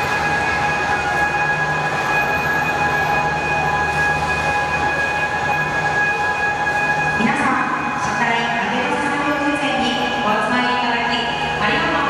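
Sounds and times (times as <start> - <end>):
crane drives humming and whirring: 0.0 - 12.0
high-pitched warning tone: 0.0 - 12.0.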